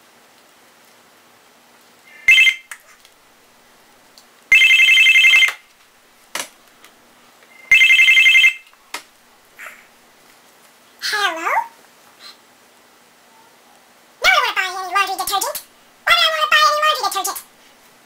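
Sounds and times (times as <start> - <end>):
electronic telephone ringtone: 2.2 - 2.7, 4.5 - 5.6, 7.6 - 8.7.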